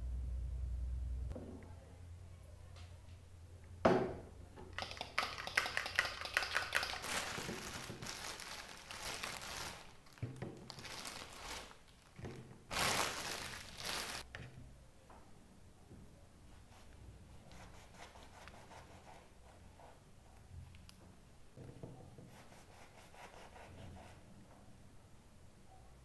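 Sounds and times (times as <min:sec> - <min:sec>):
plastic bag crinkling: 0:04.8 - 0:14.3.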